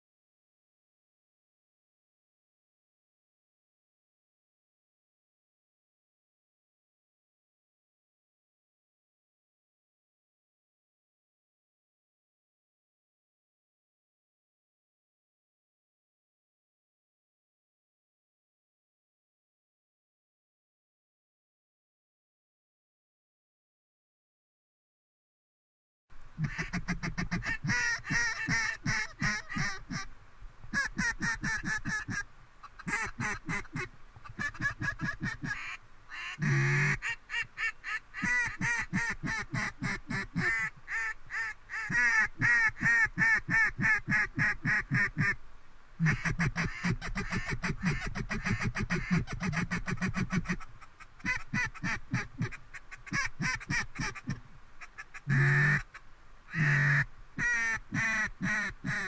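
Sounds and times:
duck call quacks and chuckles: 26.4s - 30.1s, 30.7s - 45.4s, 46.0s - 59.0s.

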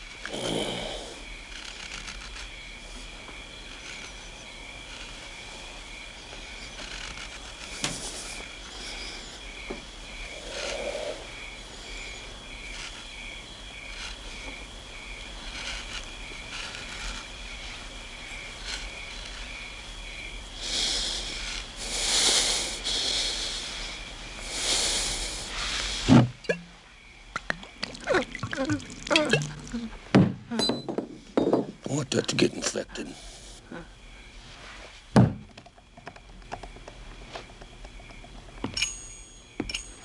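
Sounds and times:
crickets chirping: 0.0s - 40.0s
rustling hissing bursts: 10.3s - 13.1s, 15.4s - 26.4s.

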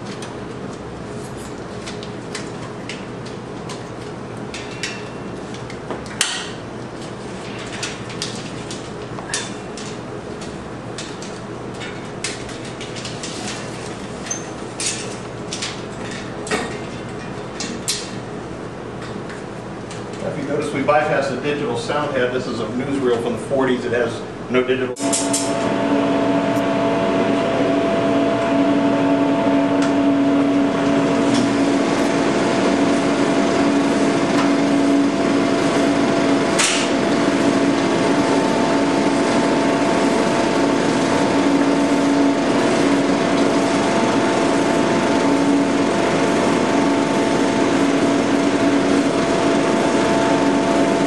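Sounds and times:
film projector running: 25.0s - 51.0s.

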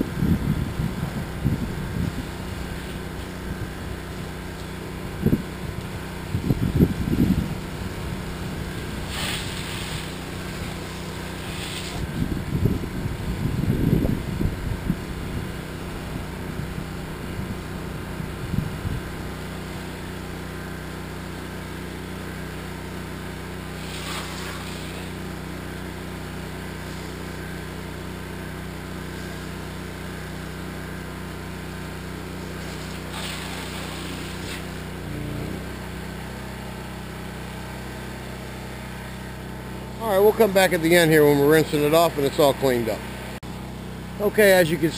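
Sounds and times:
pressure washer engine running: 0.0s - 44.9s
water jet spraying: 8.0s - 12.3s, 23.7s - 25.4s, 26.7s - 27.4s, 32.4s - 35.9s.

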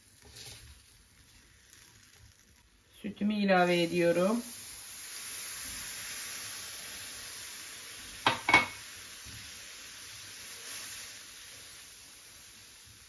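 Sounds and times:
pan sizzling: 0.0s - 13.0s
kitchenware knocks: 8.3s - 8.8s.

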